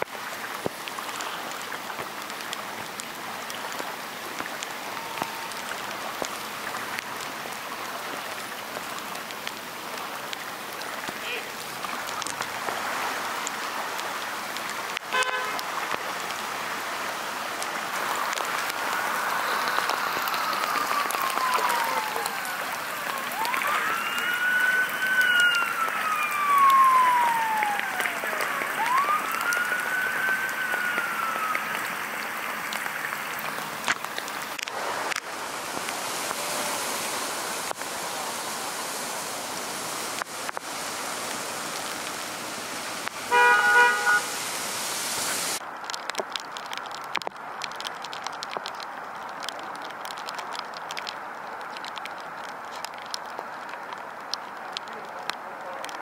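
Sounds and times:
rain hiss: 0.0 - 56.0
emergency siren wailing: 2.9 - 7.0, 17.7 - 33.8, 43.3 - 44.3
vehicle horn toot: 15.1 - 15.6, 43.3 - 44.4.

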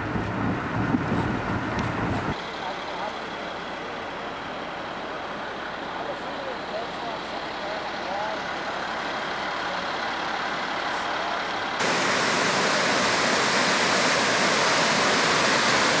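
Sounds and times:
floodwater rushing: 11.8 - 16.0.

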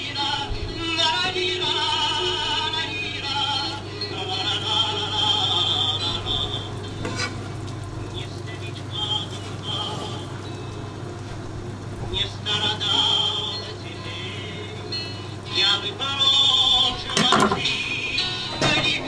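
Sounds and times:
vibrato singing voice: 0.0 - 11.1, 11.9 - 19.0
steady low hum: 0.0 - 19.0.

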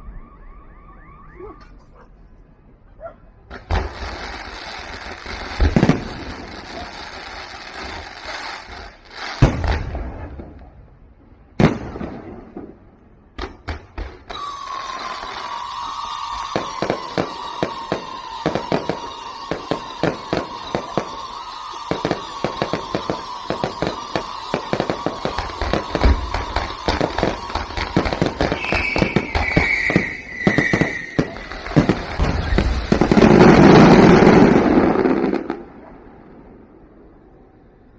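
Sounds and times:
falling whistle: 0.0 - 1.9, 14.3 - 32.8
higher falling whistle: 0.0 - 1.9, 14.3 - 33.0
fireworks bursting: 3.5 - 10.8, 11.5 - 37.1.

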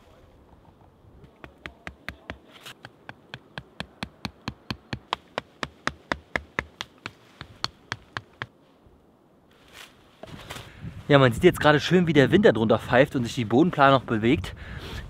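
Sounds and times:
hatchet knocking stakes into ground: 1.3 - 8.5.

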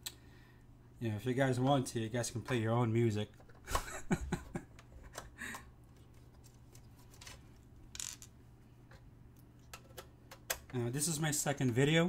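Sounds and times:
low electrical hum: 0.0 - 12.0
computer parts clicking and tapping: 9.6 - 10.8.

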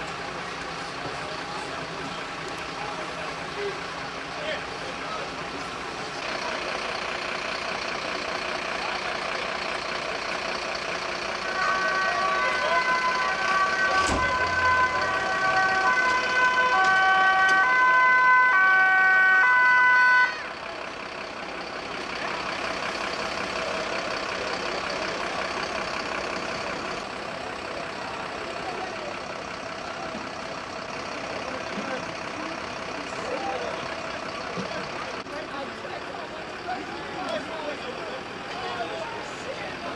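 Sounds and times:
vehicle engine noise: 0.0 - 39.9
two-tone sirens: 5.0 - 35.3.

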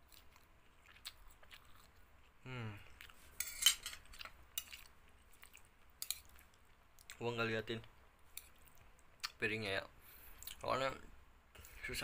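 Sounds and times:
person humming low: 2.4 - 2.8
metal spoon scraping a plate: 3.4 - 4.1.

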